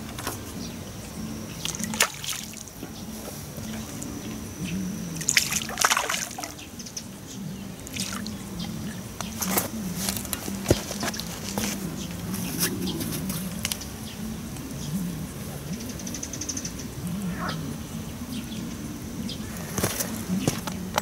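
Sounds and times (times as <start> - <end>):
fish splashing in water: 1.5 - 2.8, 5.2 - 6.8, 7.8 - 11.7.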